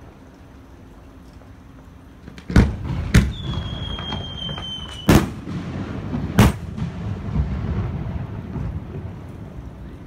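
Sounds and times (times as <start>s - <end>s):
fireworks bangs: 2.2s - 9.9s
high falling whistle: 3.3s - 5.2s
low rumble: 5.4s - 10.0s.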